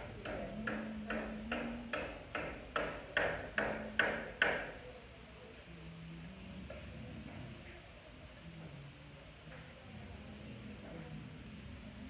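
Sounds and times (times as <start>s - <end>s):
wooden spatula tapping a frying pan: 0.0s - 4.8s.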